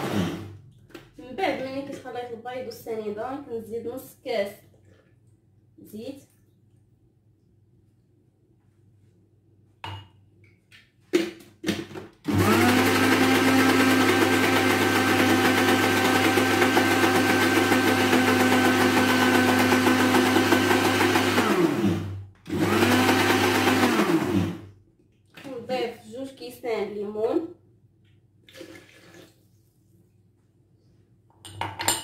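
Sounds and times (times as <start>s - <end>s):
blender motor running: 0.0s - 0.5s, 12.3s - 24.7s.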